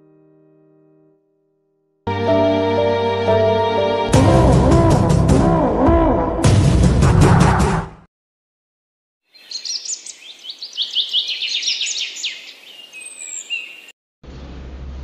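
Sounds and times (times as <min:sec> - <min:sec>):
birds chirping and whistling: 0:09.4 - 0:13.9.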